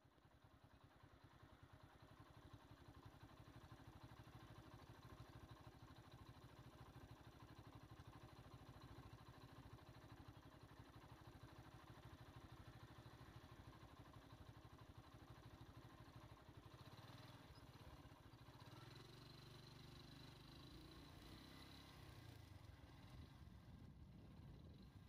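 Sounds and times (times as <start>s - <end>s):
small engine idling: 0.0s - 25.0s.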